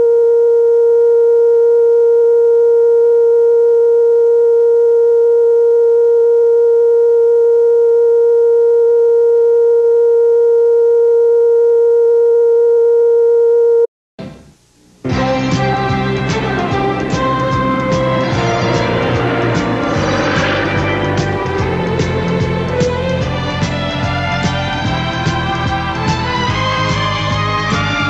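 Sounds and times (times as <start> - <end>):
steady electronic test tone: 0.0 - 24.0.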